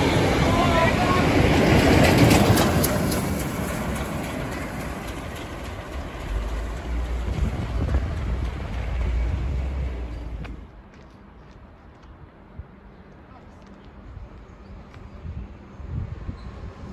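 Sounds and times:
train wheels clicking over rails: 0:00.0 - 0:10.8
steady low rumble: 0:00.0 - 0:10.9
steam train passing: 0:00.0 - 0:10.9.

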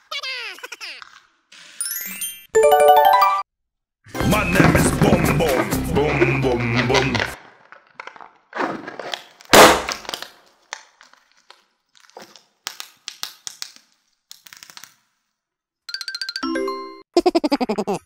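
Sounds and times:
electronic chime sound effect: 0:01.8 - 0:03.4
plastic toys clicking and rustling: 0:10.2 - 0:15.3.

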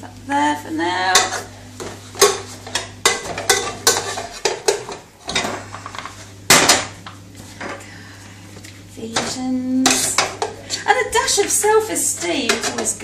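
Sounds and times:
utensils clattering on saucepan: 0:01.1 - 0:06.9, 0:09.1 - 0:13.0.

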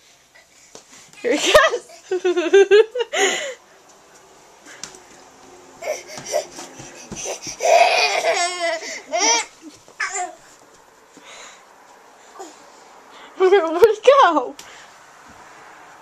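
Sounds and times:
laughter: 0:01.4 - 0:03.6
toddler babbling: 0:05.8 - 0:10.4.

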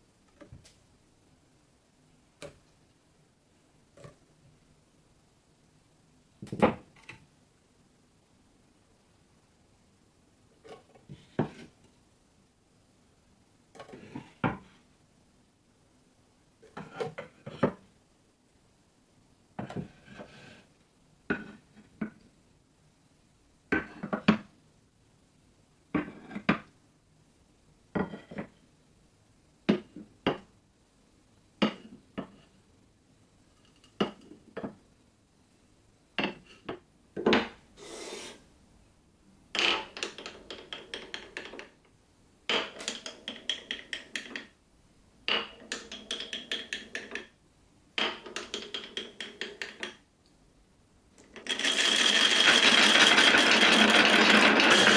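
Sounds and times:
glass marbles rolling on wood: 0:39.6 - 0:41.8, 0:42.5 - 0:44.5, 0:45.3 - 0:47.3, 0:48.0 - 0:50.0, 0:51.2 - 0:54.9.

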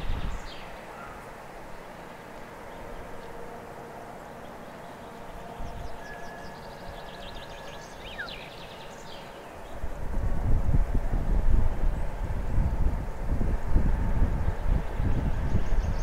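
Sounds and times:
wind rumble on microphone: 0:00.0 - 0:00.8, 0:09.6 - 0:16.0
birds chirping and trilling: 0:04.2 - 0:09.9.

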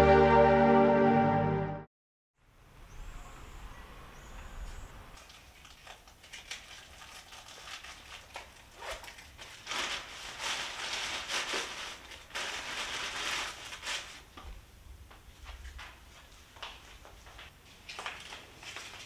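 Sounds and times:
plastic bag rustling and crinkling: 0:05.2 - 0:14.6, 0:15.3 - 0:19.0.

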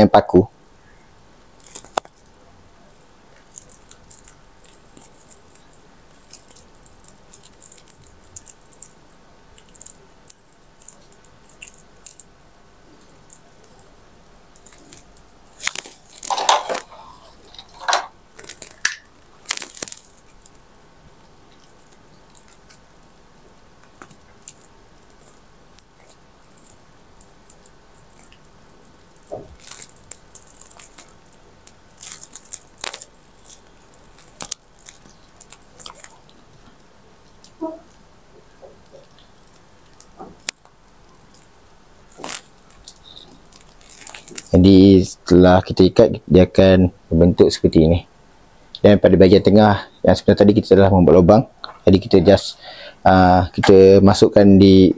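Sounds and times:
small ticks: 0:00.8 - 0:12.3, 0:18.4 - 0:44.5
plastic string rustling and crinkling: 0:00.8 - 0:13.9, 0:14.5 - 0:45.2
handling noises: 0:14.6 - 0:20.3.

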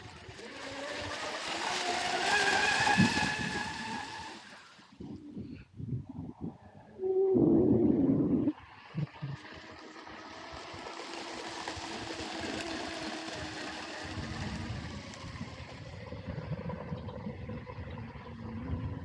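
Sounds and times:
loud droning: 0:00.0 - 0:04.9
rc speedboat motor whine: 0:00.0 - 0:05.0, 0:08.5 - 0:19.0.

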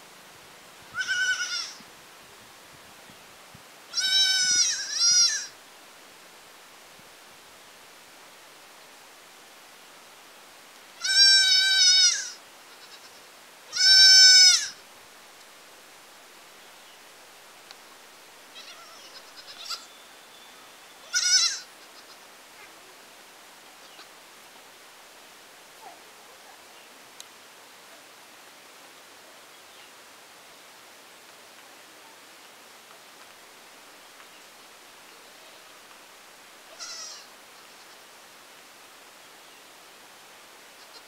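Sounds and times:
goat kid bleating: 0:00.9 - 0:01.8, 0:03.9 - 0:05.5, 0:11.0 - 0:14.8, 0:18.5 - 0:19.9, 0:21.0 - 0:22.2, 0:36.7 - 0:38.0, 0:40.8 - 0:41.0.

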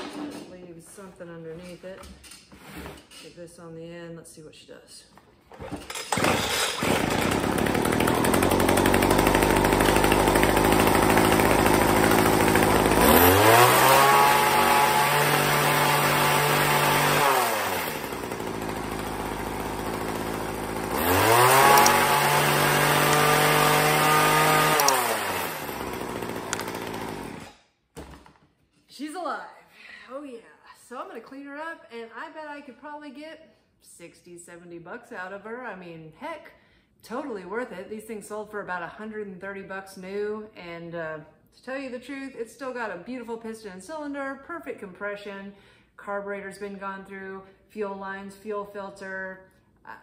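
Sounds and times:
hedge trimmer engine revving: 0:05.6 - 0:27.6.

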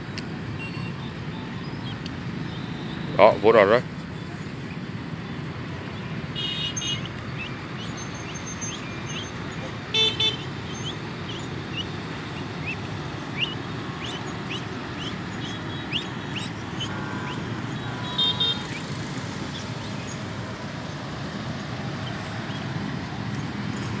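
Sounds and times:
road traffic rumble: 0:00.0 - 0:24.0
car horn toot: 0:06.4 - 0:07.1, 0:09.9 - 0:10.9, 0:15.4 - 0:19.0.

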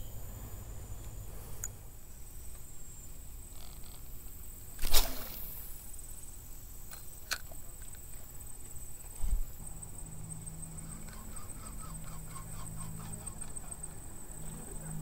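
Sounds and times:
fishing rod swish: 0:04.8 - 0:05.6.

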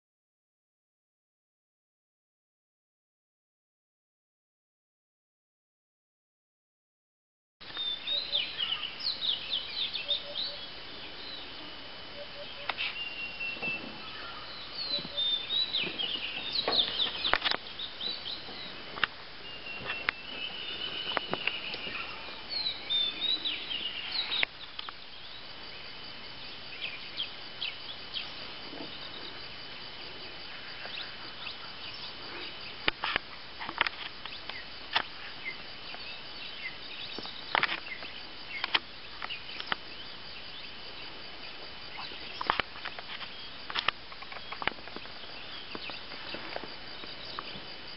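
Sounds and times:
birds chirping and calling: 0:07.6 - 0:25.5, 0:41.9 - 0:47.6
high thin insect tone: 0:07.6 - 0:47.9.

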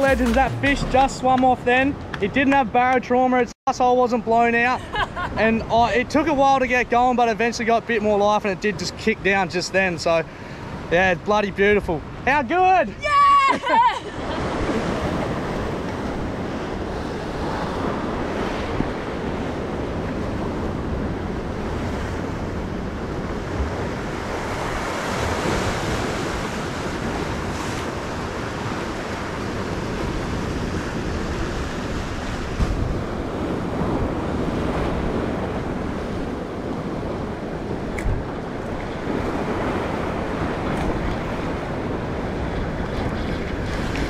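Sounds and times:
surf breaking against rocks: 0:00.0 - 0:02.6
wind buffeting microphone: 0:12.9 - 0:44.0.

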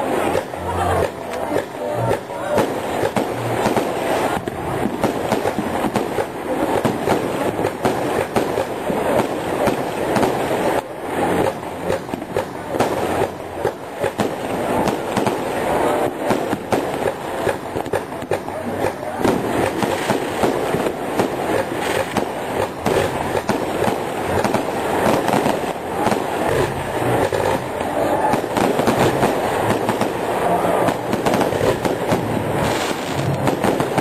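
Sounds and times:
fireworks bangs and crackling: 0:00.0 - 0:34.0.

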